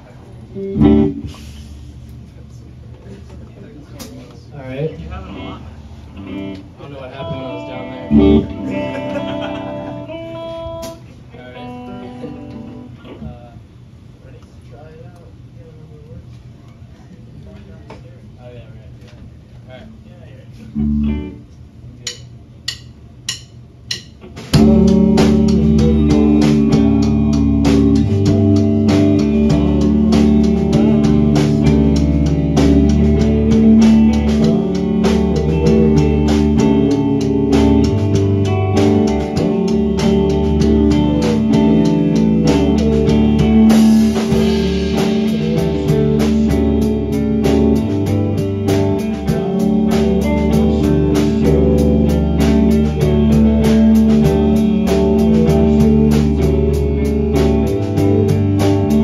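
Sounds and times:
rock band playing loudly: 0.6s - 1.7s, 6.2s - 12.9s, 23.3s - 59.0s
drumstick count-in clicks: 22.0s - 24.3s.

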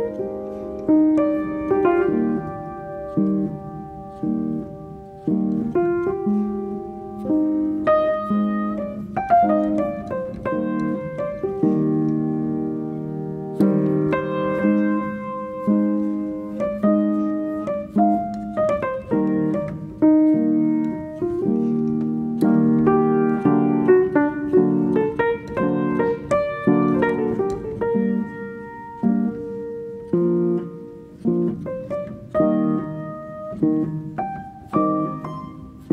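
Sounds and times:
gentle piano music: 0.0s - 35.9s.

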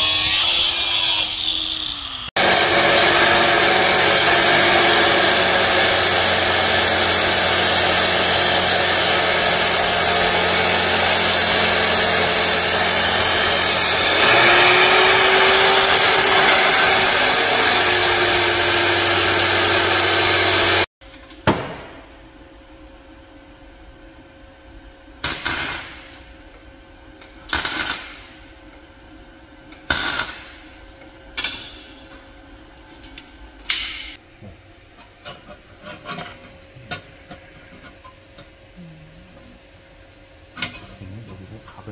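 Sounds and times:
cut-off saw grinding metal: 0.0s - 20.9s.

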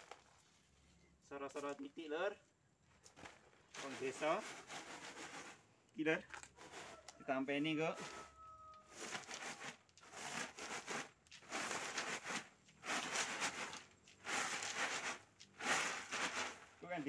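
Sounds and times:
coffee swishing in bamboo tray: 3.1s - 5.7s, 6.4s - 17.0s.

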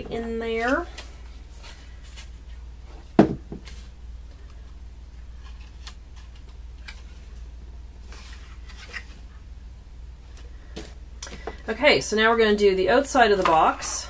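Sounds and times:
knock on work table: 3.2s - 3.6s.

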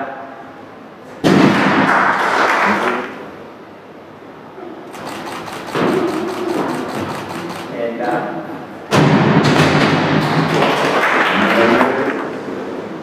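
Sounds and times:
people clapping and cheering: 1.7s - 3.2s, 9.6s - 12.4s.

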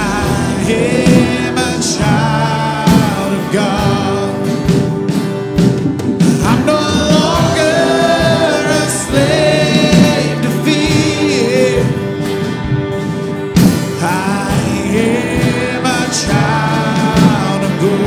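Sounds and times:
vocalists singing together: 0.0s - 5.0s, 6.2s - 12.4s, 13.8s - 18.0s
worship band playing: 0.0s - 18.0s.

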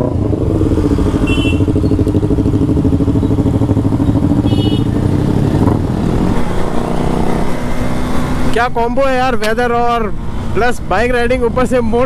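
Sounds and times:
motorcycle exhaust running: 0.0s - 8.5s.

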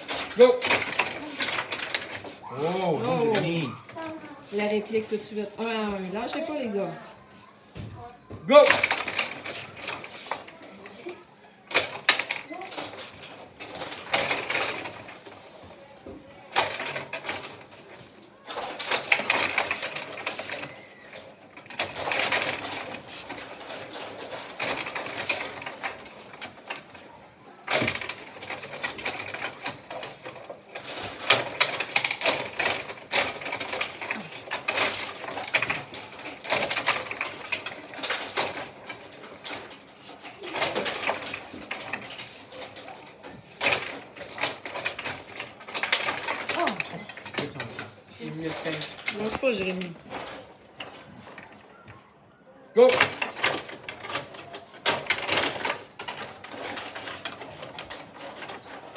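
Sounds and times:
metal rods rattling: 0.0s - 7.4s, 8.0s - 58.9s
figures and puck clacking: 0.0s - 52.1s, 52.8s - 58.9s.

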